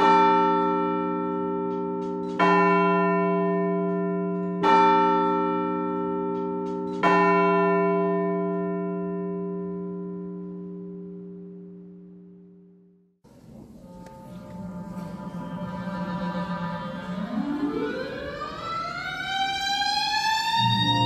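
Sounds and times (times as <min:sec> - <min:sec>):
church bell tolling: 0:00.0 - 0:12.7.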